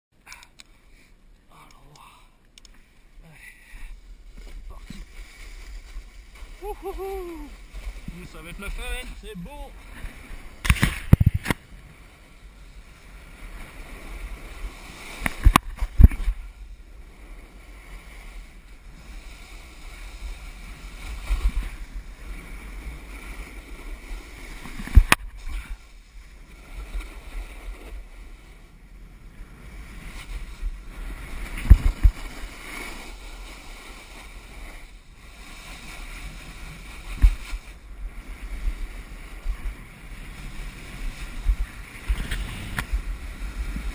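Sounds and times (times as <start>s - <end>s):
snowboard carving on snow: 3.3s - 43.9s
wind rushing over microphone: 4.6s - 12.1s, 29.3s - 34.5s
snowboard scrapes and knocks: 10.0s - 11.7s, 14.7s - 16.6s, 23.0s - 28.0s, 29.8s - 37.8s, 40.8s - 43.9s.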